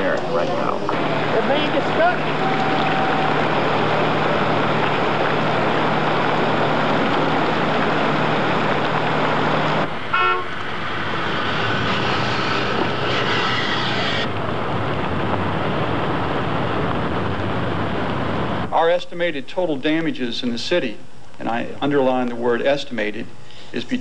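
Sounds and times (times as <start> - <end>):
floodwater rushing: 0.0 - 18.7
traffic noise: 0.0 - 18.8
steady low hum: 0.0 - 24.0
car horn toot: 10.1 - 10.6.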